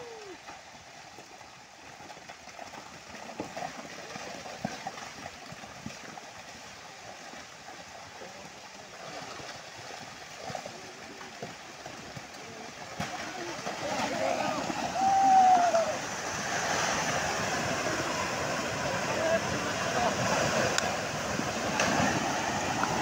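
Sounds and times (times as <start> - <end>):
landslide rushing: 12.4 - 23.0.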